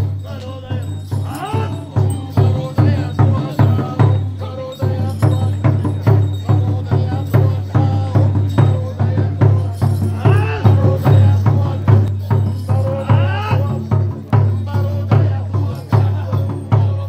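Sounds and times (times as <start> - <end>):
steady drumming: 0.0 - 17.0
voices chanting: 0.0 - 17.0.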